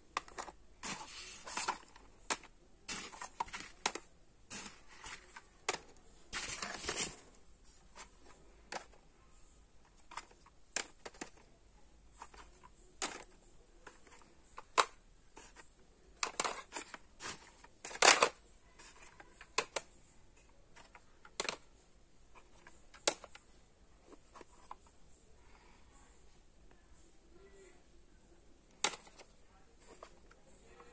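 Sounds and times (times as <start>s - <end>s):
plastic cassette cases clicking: 0.1s - 7.2s, 16.2s - 19.9s, 20.8s - 21.7s, 22.6s - 23.4s, 28.7s - 29.3s.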